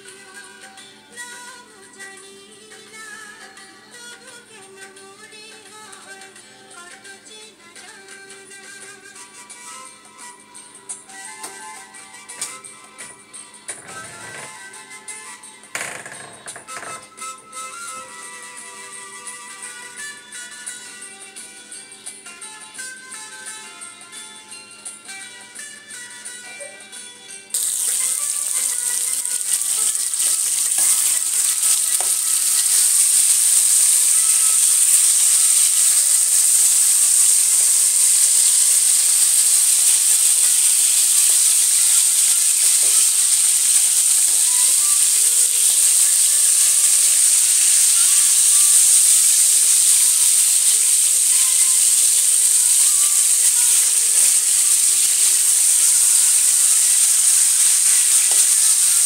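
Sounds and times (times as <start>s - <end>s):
fish sizzling in hot oil: 27.6s - 59.0s.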